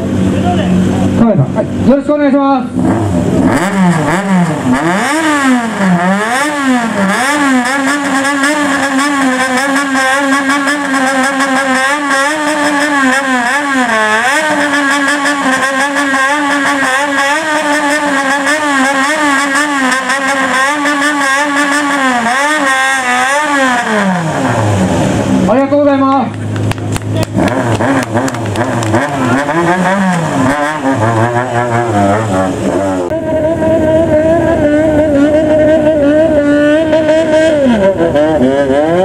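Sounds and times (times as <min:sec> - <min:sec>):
motorcycle engine revving: 0:00.0 - 0:39.0.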